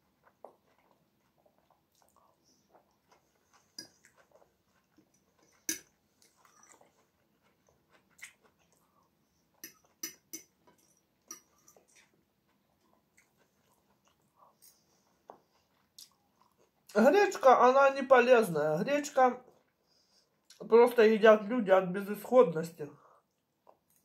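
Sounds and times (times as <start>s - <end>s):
soft chewing: 0.0s - 17.0s, 19.4s - 20.7s, 22.9s - 24.0s
fork clinking and scraping plate: 9.6s - 12.0s.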